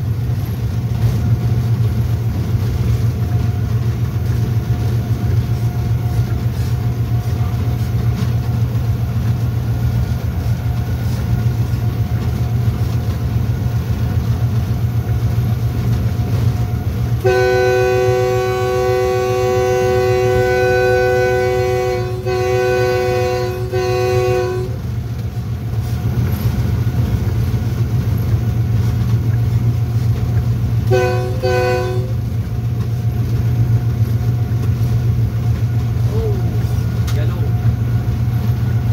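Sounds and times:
diesel locomotive rumbling: 0:00.0 - 0:38.9
train air horn blasts: 0:17.2 - 0:24.8, 0:30.8 - 0:32.3.

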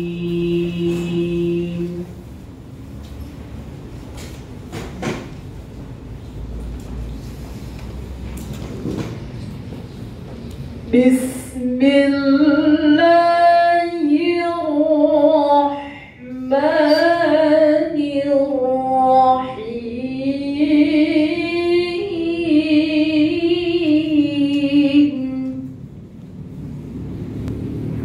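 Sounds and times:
woman chanting melodically: 0:00.0 - 0:02.2, 0:10.9 - 0:25.8.

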